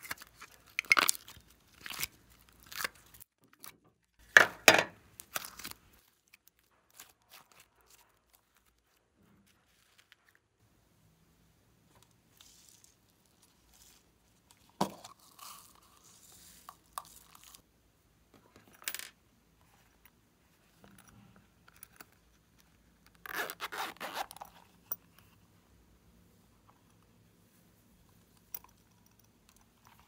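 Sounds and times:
zipper pulled open: 23.0s - 25.0s.

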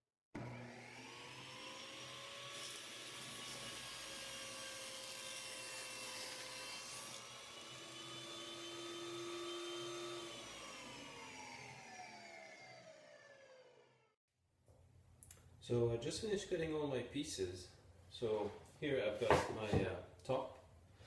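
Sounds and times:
saw motor winding down: 0.4s - 14.2s
table saw cutting wood: 0.4s - 14.2s.

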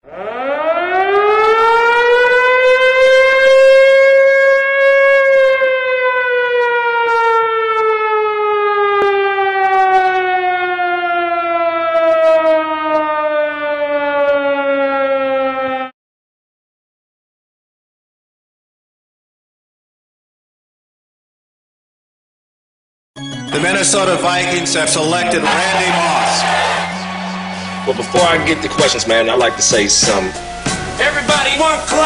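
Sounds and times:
air-raid siren wailing: 0.0s - 16.0s, 23.2s - 32.0s.

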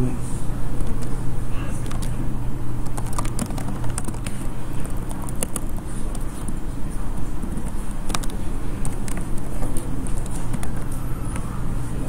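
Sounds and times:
low room noise rumble: 0.0s - 12.0s
keyboard key clicks: 2.8s - 6.6s, 7.6s - 11.5s.

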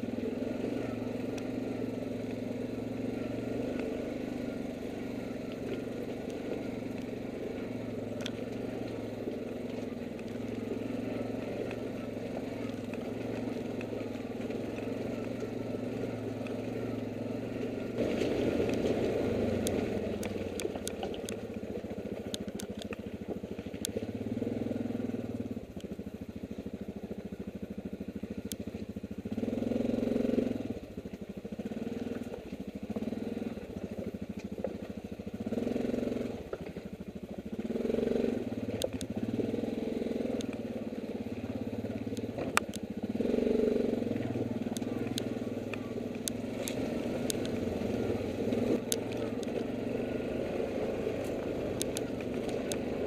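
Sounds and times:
atv engine running: 0.0s - 53.0s
clicks and knocks over rocks: 17.6s - 24.0s, 44.2s - 53.0s.

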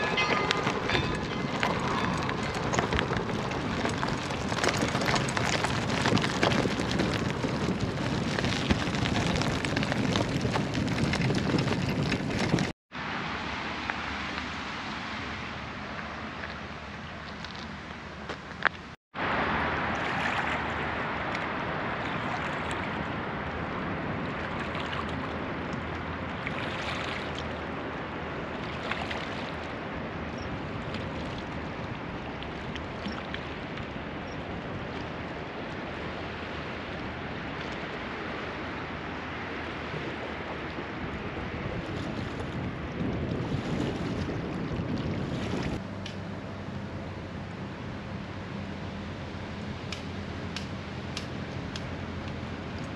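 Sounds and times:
river water lapping on stones: 0.0s - 12.7s, 19.9s - 23.5s, 24.2s - 45.8s
wind on microphone: 0.0s - 12.8s, 19.2s - 45.9s.

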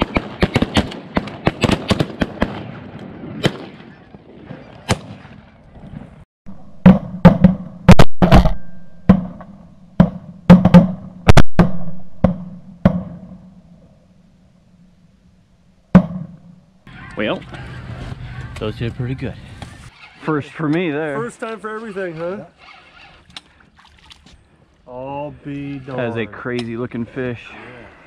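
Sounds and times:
shotgun blasts: 0.0s - 3.9s
geese honking: 16.9s - 19.2s.

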